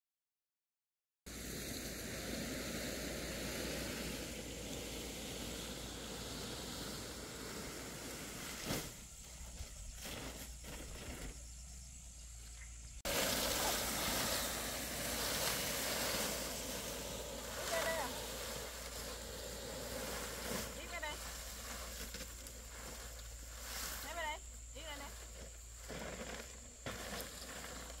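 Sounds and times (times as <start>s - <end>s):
air and leaves hissing: 1.3s - 28.0s
loud rustling: 13.1s - 28.0s.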